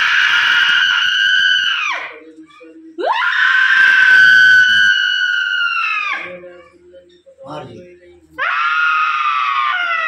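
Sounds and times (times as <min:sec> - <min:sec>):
woman screaming: 0:03.0 - 0:06.3, 0:08.4 - 0:10.0.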